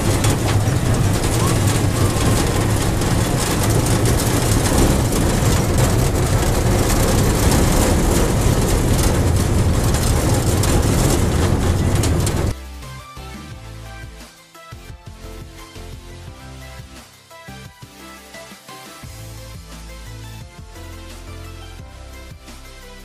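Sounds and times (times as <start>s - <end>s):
background music: 0.0s - 23.0s.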